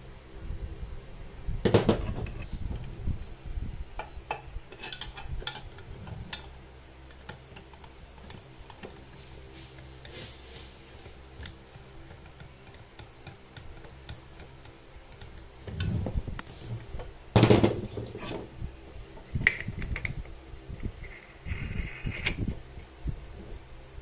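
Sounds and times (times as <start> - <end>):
tool knocking and scraping on stand: 1.7 - 2.5, 11.0 - 18.5.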